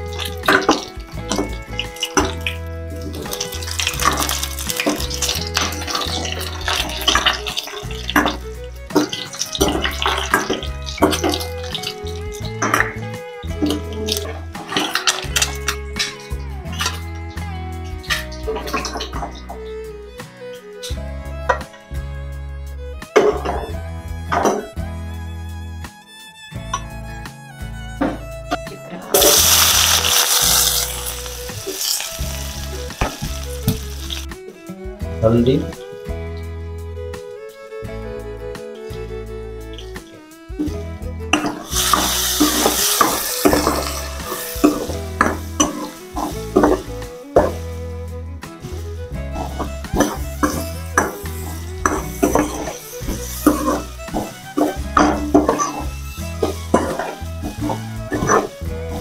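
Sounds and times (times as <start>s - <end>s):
oil sizzling: 0.0s - 21.0s, 29.1s - 34.6s, 39.6s - 59.0s
background music with bass: 0.0s - 59.0s
metal spoon scraping a wok: 29.2s - 33.2s, 41.4s - 47.7s, 49.4s - 59.0s.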